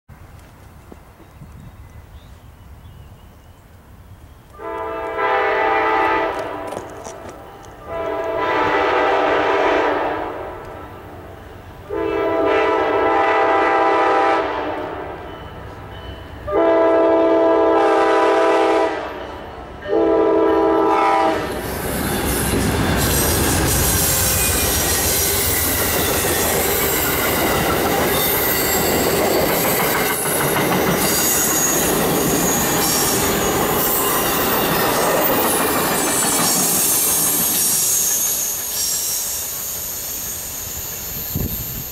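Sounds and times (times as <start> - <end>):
train rushing past: 4.0 - 41.9
locomotive air horn blasts: 4.6 - 10.9, 11.8 - 15.3, 16.5 - 21.6.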